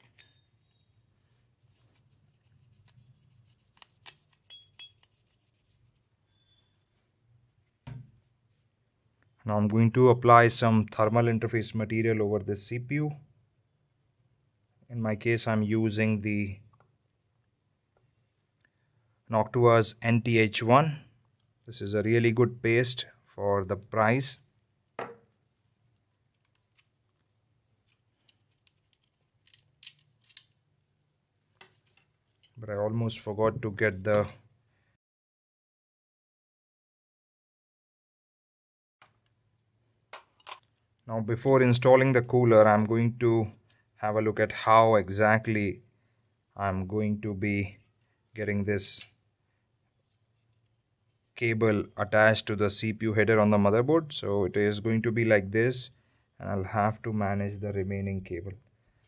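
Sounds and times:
cloth rubbing on metal: 1.6 - 6.0.

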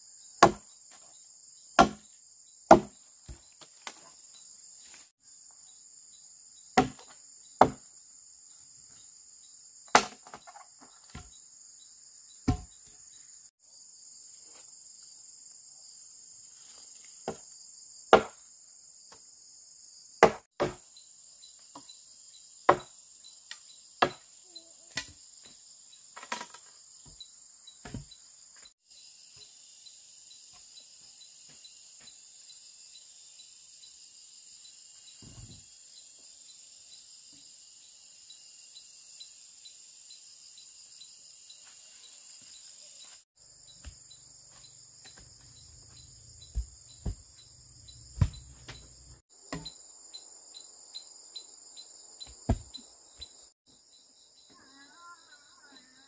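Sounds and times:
insects droning: 0.0 - 56.0
tool striking wood: 0.4 - 0.6, 1.8 - 2.0, 2.7 - 3.0, 6.8 - 7.8, 9.9 - 10.5, 12.5 - 12.7, 18.1 - 18.4, 20.2 - 20.8, 22.7 - 22.9, 24.0 - 24.2, 46.4 - 47.2, 48.1 - 48.9, 49.5 - 49.8, 52.3 - 52.7.

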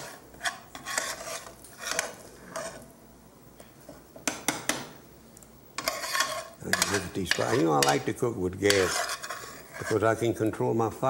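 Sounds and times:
metal spoon scraping skillet: 0.0 - 2.9, 5.8 - 10.3.

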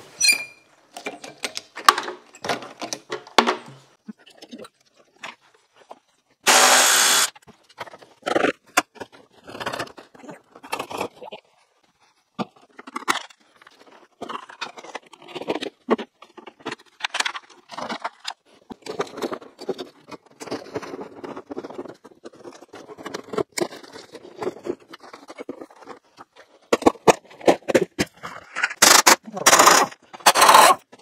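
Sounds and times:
plastic and metal parts being pried: 0.9 - 3.8, 12.4 - 31.0.

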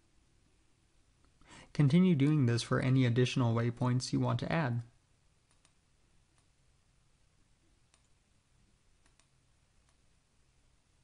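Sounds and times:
faint computer mouse clicks: 5.5 - 5.8, 7.9 - 8.2, 9.0 - 10.0.

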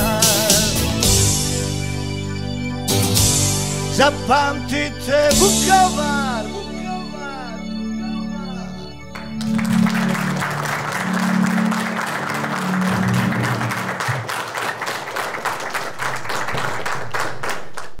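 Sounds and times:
low backing music notes: 0.0 - 14.1
audience applauding: 5.7 - 18.0.

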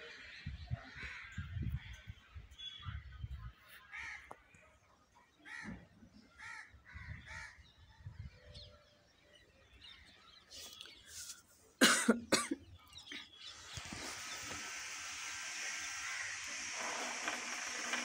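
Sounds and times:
steady hiss: 13.4 - 18.0.

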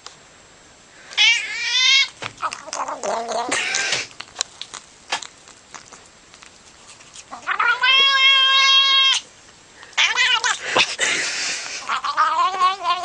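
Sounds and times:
cat meowing: 1.2 - 4.1, 7.3 - 9.2, 10.0 - 10.6, 11.8 - 13.0.

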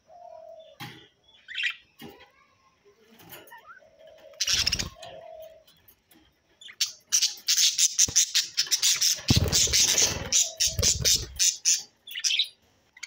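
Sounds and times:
budgerigars chirping and squawking: 0.3 - 2.0, 3.2 - 13.0
wings fluttering: 7.8 - 11.7.

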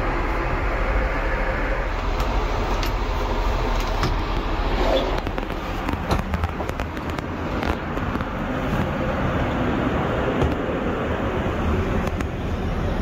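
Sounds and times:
aircraft cabin noise: 0.0 - 13.0.

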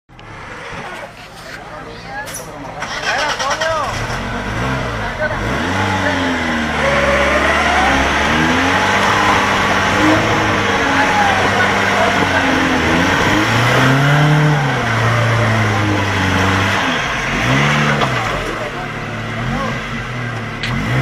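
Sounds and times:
off-road engine revving: 0.1 - 21.0.

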